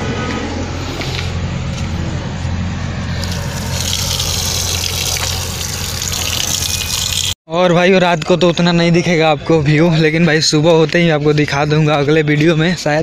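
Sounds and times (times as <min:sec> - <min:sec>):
low engine hum: 0:00.0 - 0:07.4
tap water splashing: 0:03.2 - 0:07.4.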